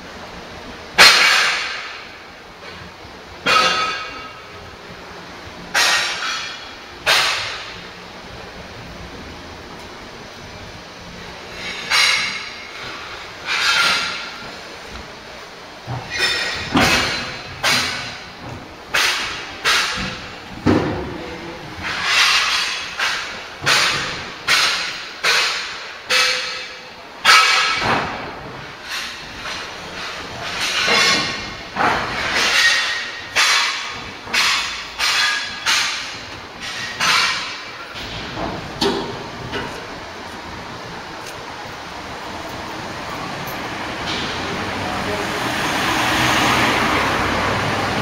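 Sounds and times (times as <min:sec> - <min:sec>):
wooden boards banging into metal skip: 0:01.0 - 0:02.1, 0:03.4 - 0:04.5, 0:05.7 - 0:07.8, 0:15.8 - 0:40.0.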